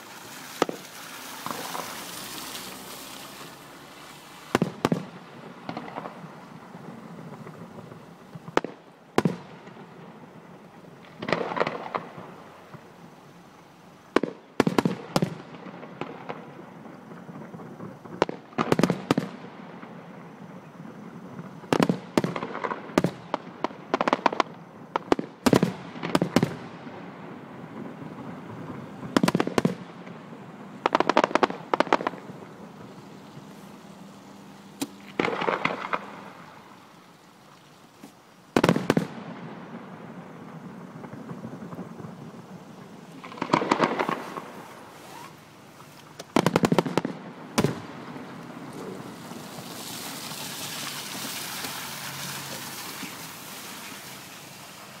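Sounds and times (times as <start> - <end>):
firework shells bursting: 0.0 - 3.8, 4.4 - 9.8, 11.0 - 12.8, 30.8 - 33.5, 34.8 - 36.8, 38.0 - 45.4, 46.0 - 55.0
firework crackling: 0.0 - 55.0.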